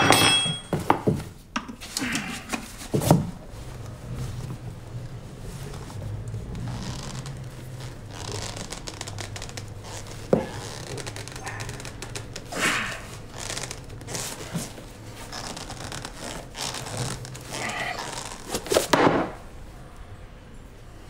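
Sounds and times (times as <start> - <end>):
leather rustling and crinkling: 2.6 - 19.4.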